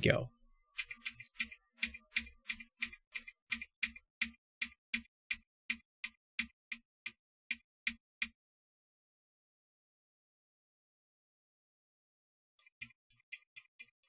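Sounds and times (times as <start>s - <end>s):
keyboard keys typing: 0.8s - 8.3s.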